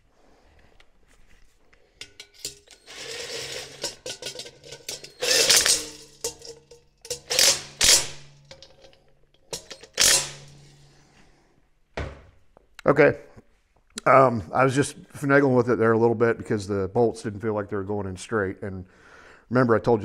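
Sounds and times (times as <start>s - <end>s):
impact gun bursts: 7.1s - 8.6s, 9.5s - 10.7s.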